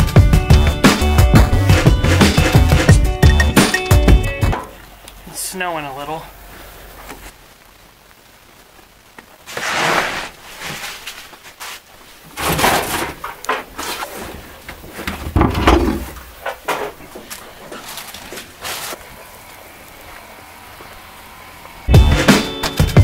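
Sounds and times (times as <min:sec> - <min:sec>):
cardboard boxes scraping and rustling: 0:09.4 - 0:16.1, 0:17.0 - 0:19.0.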